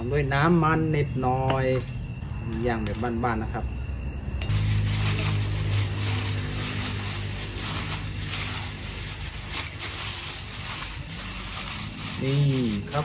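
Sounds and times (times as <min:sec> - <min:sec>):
plastic bag crinkling: 0:04.5 - 0:13.0.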